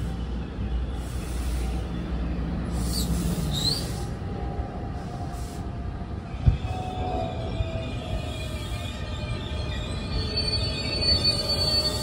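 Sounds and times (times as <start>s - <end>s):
train wheels rumbling on rail: 0.0s - 12.0s
high rising squeals: 6.7s - 12.0s.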